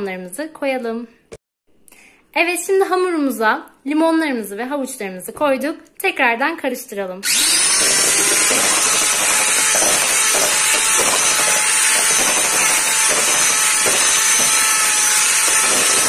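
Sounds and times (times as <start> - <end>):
electric hand mixer whisking batter: 7.2 - 16.0.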